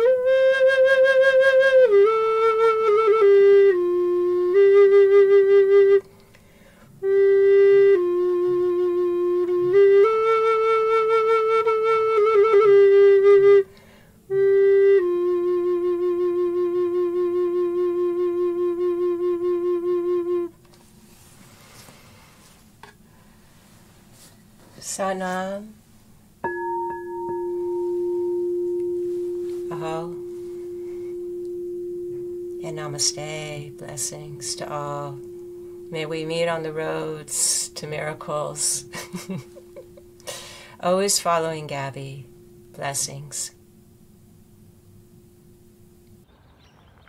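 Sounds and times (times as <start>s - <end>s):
wooden flute playing slowly: 0.0s - 21.4s, 26.4s - 46.2s
singing bowl ringing: 26.4s - 46.2s.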